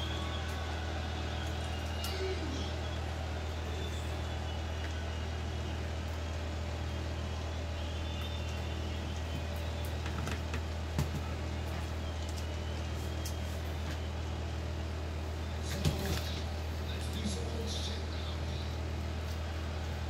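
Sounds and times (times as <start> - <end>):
low mechanical hum: 0.0 - 20.0
faint clicks of small parts: 8.2 - 14.0.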